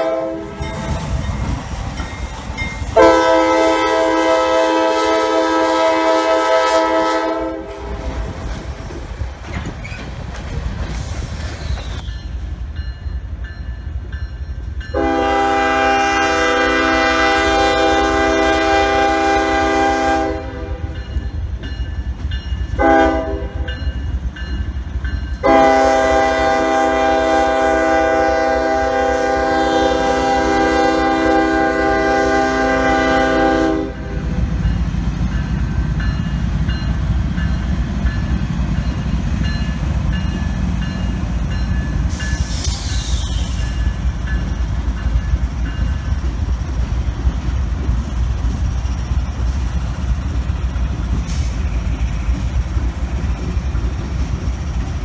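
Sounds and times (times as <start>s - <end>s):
train air horn blasts: 0.0s - 1.1s, 2.9s - 8.0s, 14.9s - 21.0s, 22.8s - 23.7s, 25.4s - 34.4s
diesel locomotive rumbling past: 0.0s - 55.0s.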